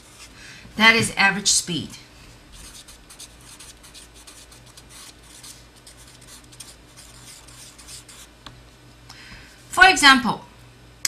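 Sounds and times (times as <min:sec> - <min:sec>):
marker scratching on paper: 0:02.6 - 0:08.3.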